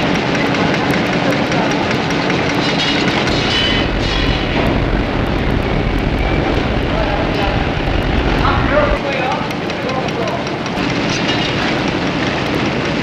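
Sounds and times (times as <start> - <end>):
machinery clatter: 0.0 - 13.0
steady machine hum: 0.0 - 13.0
deep rumble: 3.1 - 9.1.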